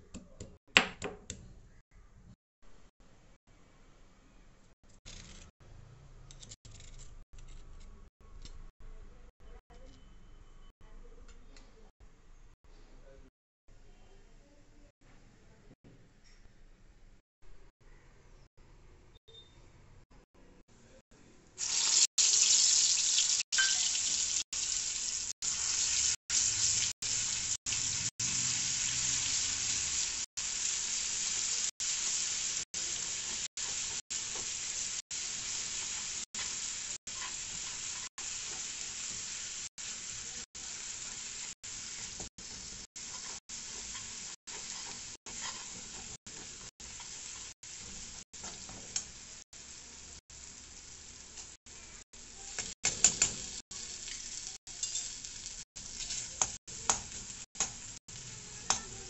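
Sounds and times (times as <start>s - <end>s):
paste sizzling in hot oil: 21.6s - 59.0s
spatula stirring in pan: 32.8s - 49.4s.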